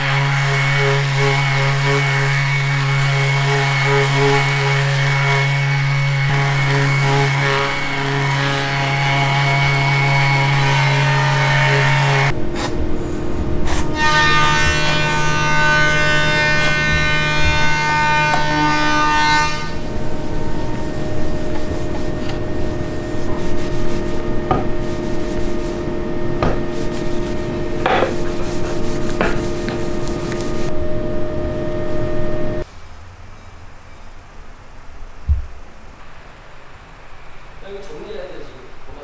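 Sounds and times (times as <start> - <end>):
many-toned drone: 8.6 - 27.8, 29.8 - 34.2
steady hum: 11.9 - 39.0
cloth rubbing on wood: 16.5 - 30.7.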